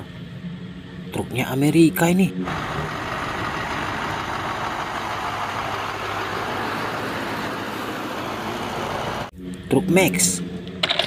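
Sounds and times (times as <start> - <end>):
truck diesel engine running: 2.3 - 9.3.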